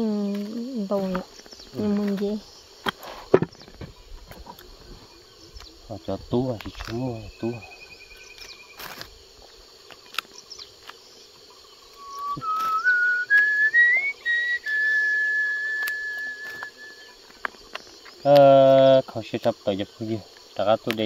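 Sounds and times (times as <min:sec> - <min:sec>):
man whistling: 0:12.0 - 0:17.2.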